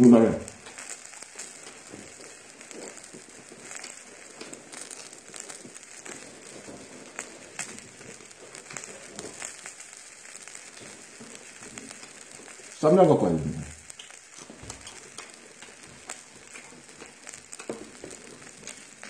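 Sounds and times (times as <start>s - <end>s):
meat sizzling on a grill pan: 0.0s - 19.0s
fat spitting pops: 13.7s - 19.0s.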